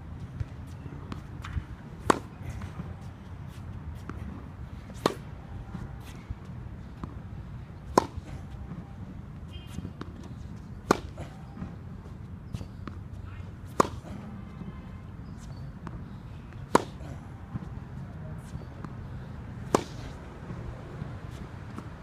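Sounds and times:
tennis racket hitting ball: 1.1 - 3.0, 4.0 - 5.3, 7.8 - 8.8, 9.7 - 11.7, 13.6 - 14.3, 16.6 - 17.7, 19.6 - 20.3.

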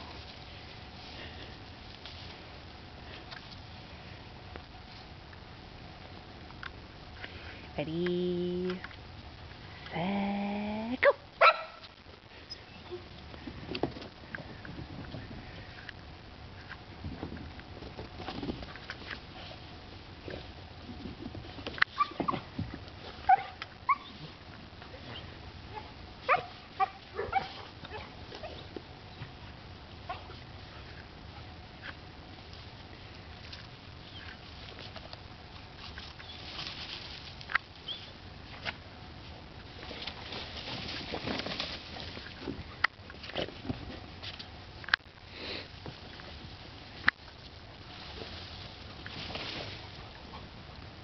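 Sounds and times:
puppies sniffing in snow: 45.2 - 47.0.

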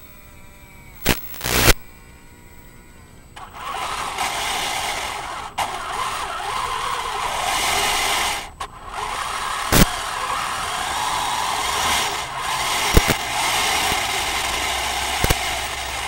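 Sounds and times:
sharp click: 1.0 - 1.8, 12.9 - 13.2, 15.2 - 15.4
toy tank grinding mechanical noise: 2.5 - 16.0.

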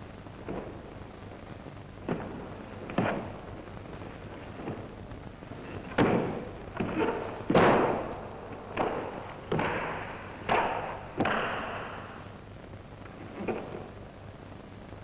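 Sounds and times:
strikes and steps on wooden floor: 2.0 - 3.5, 5.7 - 12.2.

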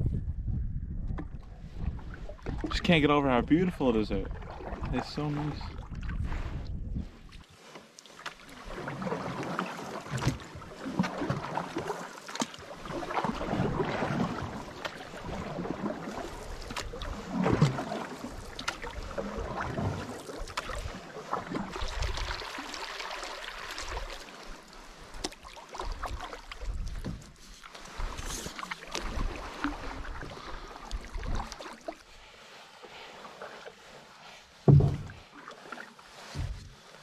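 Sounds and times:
paddles dipping through water: 1.0 - 37.0
water splashing and dripping: 7.3 - 32.0
low thumps: 34.7 - 35.2.

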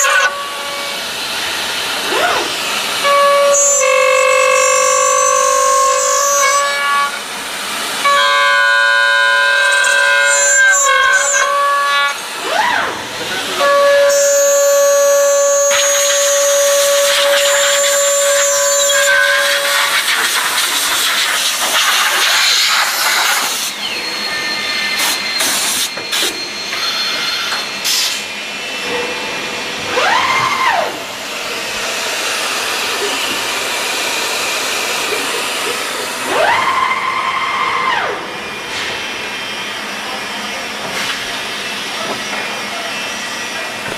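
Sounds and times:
spindle whine rising and falling: 13.5 - 20.3
machining centre hiss and tones: 13.6 - 28.5.

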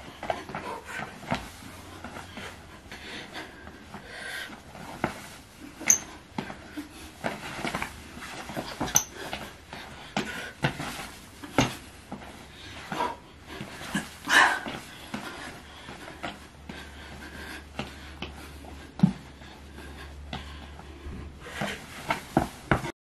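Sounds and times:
feet thudding and scuffing: 0.0 - 2.6, 3.8 - 22.9
heavy breathing: 0.0 - 22.9
shoe squeaks: 5.8 - 6.2, 8.5 - 9.4.

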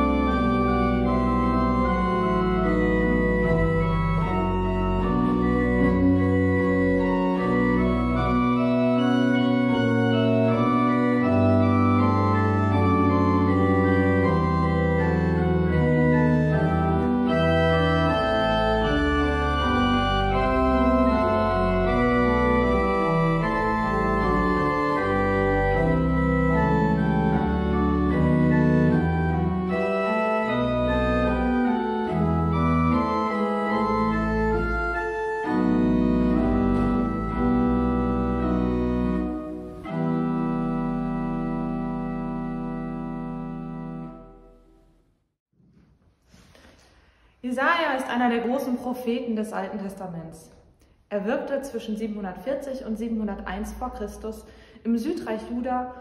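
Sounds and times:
pipe organ playing chords: 0.0 - 44.9.

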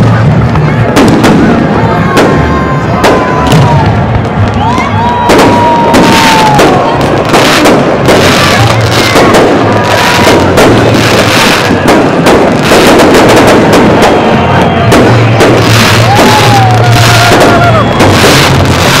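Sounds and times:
firework bangs and crackling: 0.0 - 19.0
firework whistles: 0.8 - 19.0.

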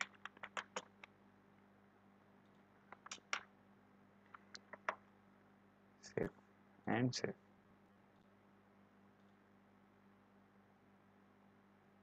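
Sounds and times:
keyboard and mouse clicks: 0.0 - 1.1, 2.4 - 3.5, 4.3 - 5.0
faint steady hum: 0.0 - 12.0.

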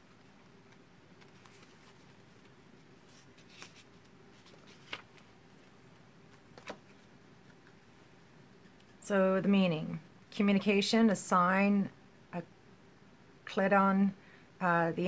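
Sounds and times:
cards rustling: 0.0 - 7.8.

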